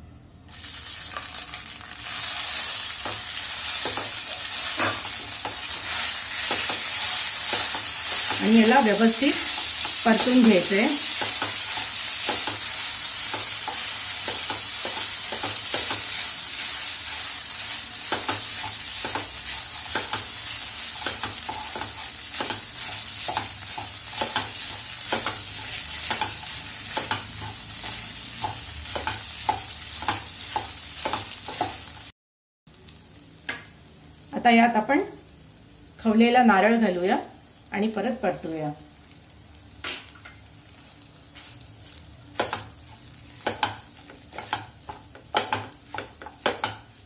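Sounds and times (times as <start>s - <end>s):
steady sizzle: 0.0s - 32.1s, 32.7s - 47.0s
wooden spatula scraping pan: 43.4s - 46.8s.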